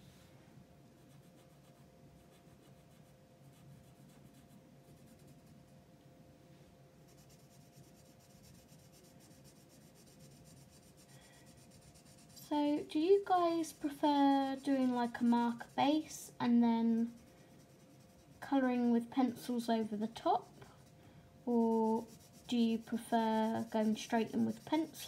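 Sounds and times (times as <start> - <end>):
faint steady hum: 0.0 - 25.0
marker scratching on paper: 7.1 - 16.2, 16.9 - 20.9, 21.5 - 25.0.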